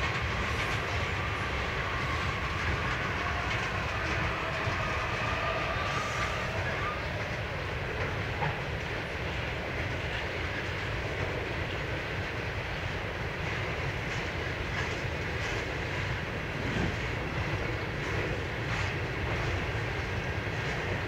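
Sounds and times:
clatter over rail joints: 0.0s - 5.4s, 13.6s - 21.0s
steel wheels running on rail: 0.0s - 21.0s.

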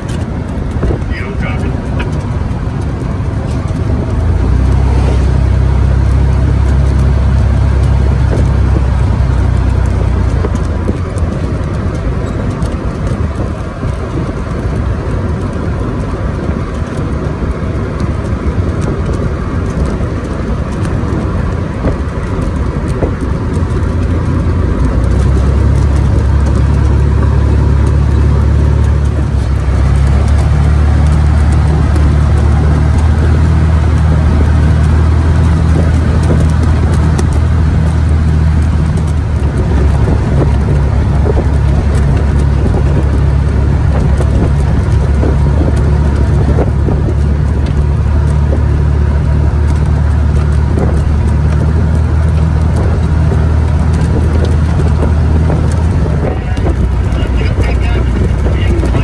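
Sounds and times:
military vehicle engine and road rumble: 0.0s - 59.0s.

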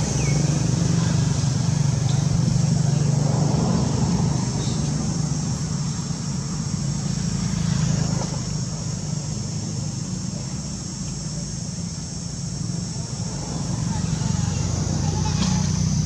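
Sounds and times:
constant high hiss: 0.0s - 16.0s
low engine hum: 0.0s - 16.0s.

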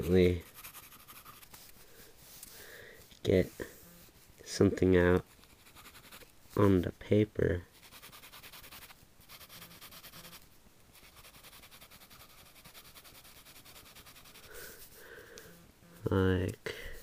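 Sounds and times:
pencil scratching on paper: 0.0s - 1.7s, 5.2s - 6.3s, 7.8s - 10.4s, 11.0s - 15.0s.

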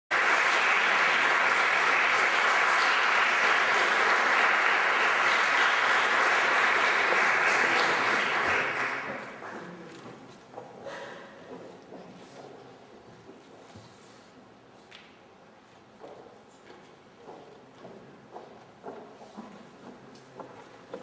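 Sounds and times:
audience applauding: 0.1s - 9.8s.

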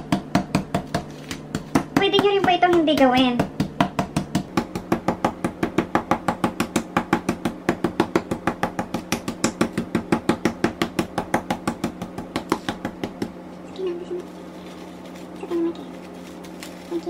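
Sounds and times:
meat mallet pounding on board: 0.0s - 13.4s.

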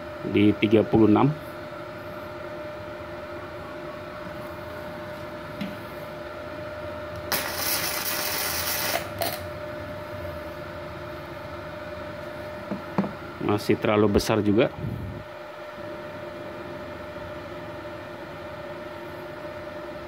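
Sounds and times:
welder machine hum: 0.0s - 20.0s
welding arc crackling hiss: 7.2s - 9.5s.

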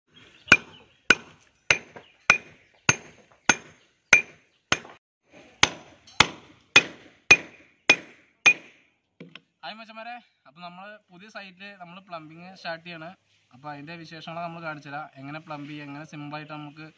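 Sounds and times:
hammer striking chisel into concrete: 0.5s - 5.0s, 5.6s - 8.8s.

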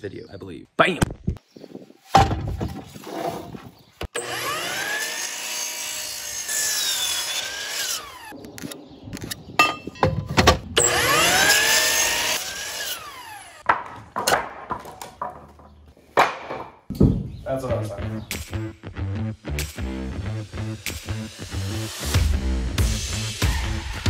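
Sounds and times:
miter saw whining and cutting wood: 4.1s - 8.4s, 10.8s - 13.6s.

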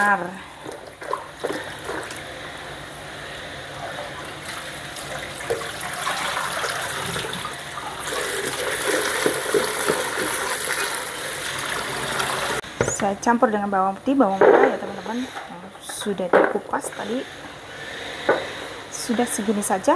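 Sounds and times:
water splashing into sink: 3.8s - 12.6s
tap running into basin: 3.8s - 13.1s.

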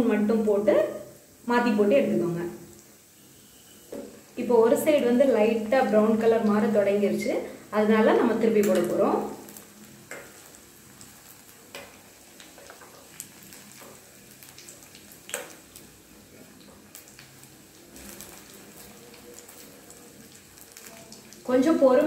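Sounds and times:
food sizzling in hot oil: 0.0s - 22.0s.

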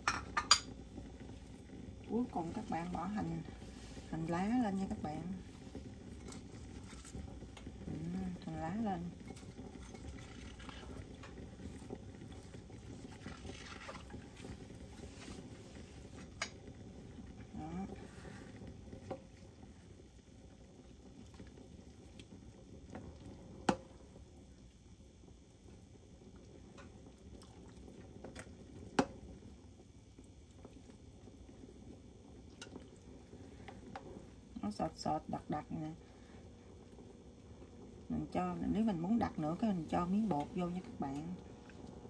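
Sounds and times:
soup bubbling and crackling: 0.0s - 42.0s
soup sloshing: 9.0s - 16.5s.

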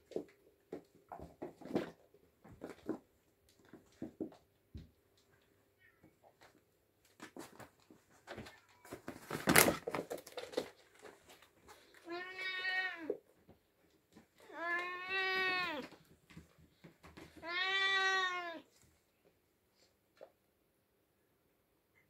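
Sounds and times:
cat meowing: 12.1s - 13.2s, 14.5s - 15.9s, 17.4s - 18.7s.

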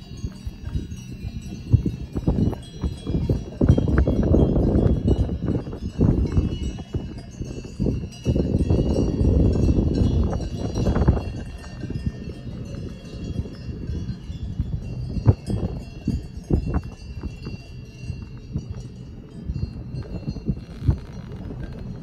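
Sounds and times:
cowbells jangling: 0.0s - 22.0s
low rumbling noise: 0.0s - 22.0s.

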